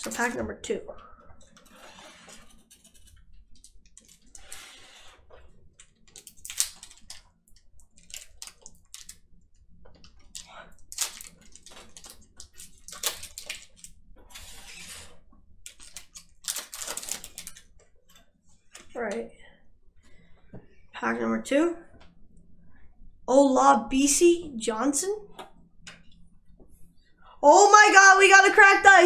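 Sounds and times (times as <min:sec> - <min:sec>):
cards clicking: 0:06.2 - 0:07.2
card pack wrapper crinkling: 0:10.9 - 0:13.8, 0:15.7 - 0:17.6.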